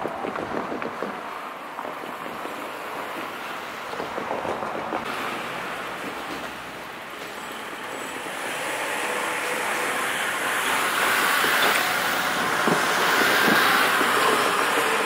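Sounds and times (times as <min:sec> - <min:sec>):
wind buffeting microphone: 0:00.0 - 0:05.2, 0:09.6 - 0:15.0.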